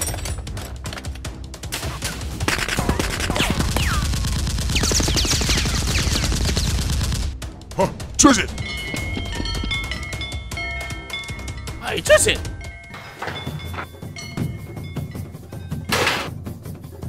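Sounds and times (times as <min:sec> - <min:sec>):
toy blaster gunfire effects: 0:02.5 - 0:06.9.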